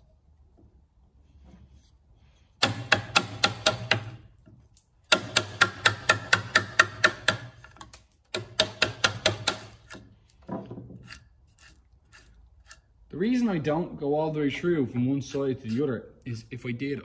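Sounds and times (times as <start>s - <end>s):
wooden mallet tapping a chisel: 2.6s - 4.3s, 5.1s - 11.2s.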